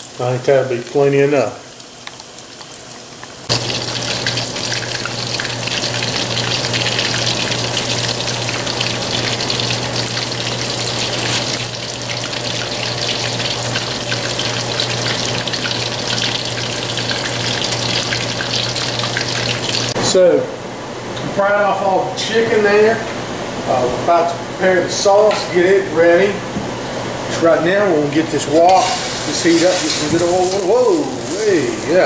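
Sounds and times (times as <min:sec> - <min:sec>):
hot oil sizzling and crackling: 0:00.0 - 0:20.0, 0:28.6 - 0:32.0.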